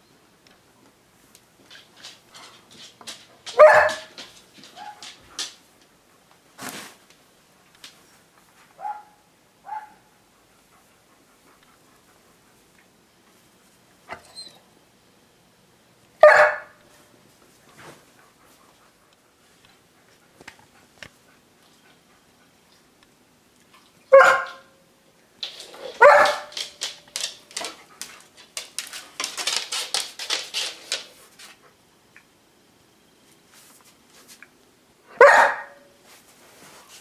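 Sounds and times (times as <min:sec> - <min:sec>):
dog barking: 0:03.5 - 0:04.1, 0:08.8 - 0:10.1, 0:16.2 - 0:16.8, 0:24.1 - 0:24.8, 0:26.0 - 0:26.5, 0:35.1 - 0:35.9.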